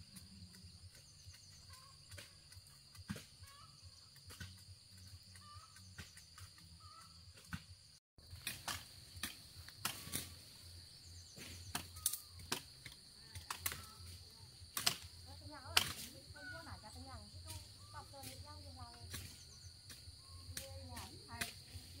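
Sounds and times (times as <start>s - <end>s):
faint bird chirps: 0.4s - 2.8s, 3.4s - 7.3s, 18.8s - 20.9s
dry branches snapping: 8.2s - 10.4s, 11.4s - 16.2s.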